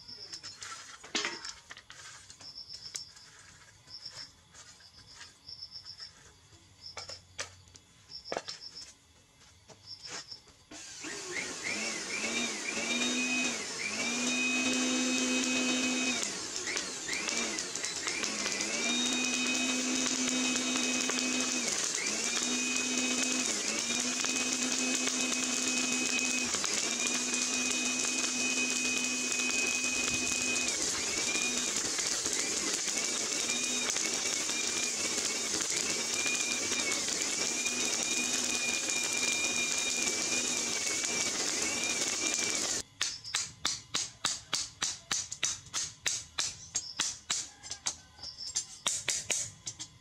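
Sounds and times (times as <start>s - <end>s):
electric air blower whining: 10.7s - 43.0s.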